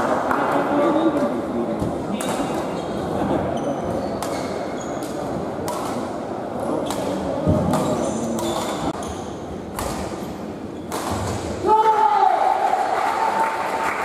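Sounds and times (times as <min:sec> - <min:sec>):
shoes squeaking on court: 0:02.8 - 0:05.4, 0:07.1 - 0:11.0
racket striking shuttlecock: 0:10.9 - 0:11.6.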